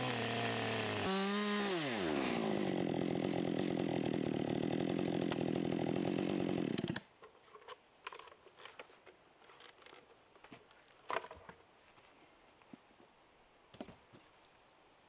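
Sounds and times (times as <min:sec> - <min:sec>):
chainsaw cutting log: 0:00.0 - 0:07.1.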